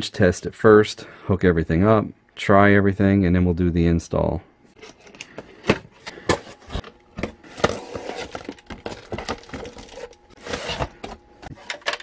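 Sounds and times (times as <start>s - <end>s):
crinkling plastic rustle: 6.6s - 11.0s.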